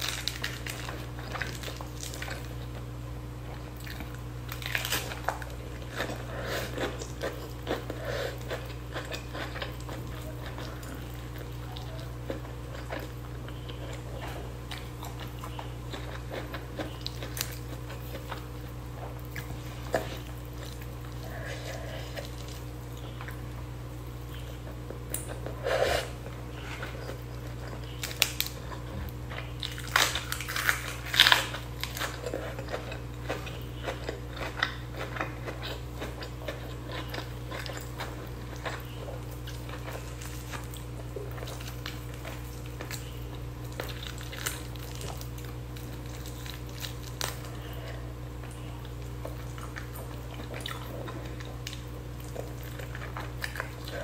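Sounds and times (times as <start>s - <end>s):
chewing: 0.0s - 54.0s
steady low hum: 0.0s - 54.0s
fingers tearing chicken: 26.6s - 47.7s.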